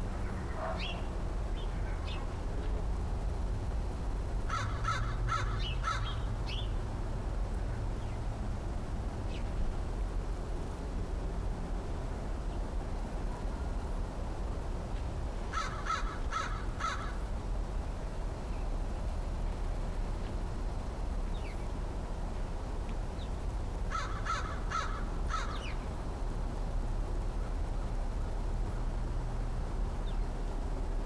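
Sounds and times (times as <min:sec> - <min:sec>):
low background rumble: 0:00.0 - 0:31.0
crow cawing: 0:04.5 - 0:06.2, 0:15.5 - 0:17.2, 0:23.9 - 0:25.7.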